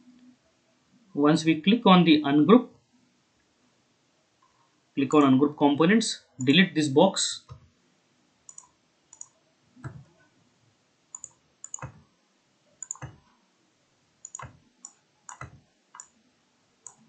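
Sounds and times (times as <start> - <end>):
computer mouse buttons clicking: 8.5 - 10.1, 11.1 - 12.0, 12.8 - 13.3, 14.2 - 16.2.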